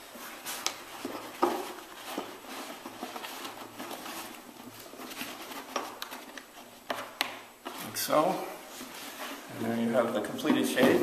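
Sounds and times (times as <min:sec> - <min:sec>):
rustling of lamp shade: 0:00.0 - 0:11.0.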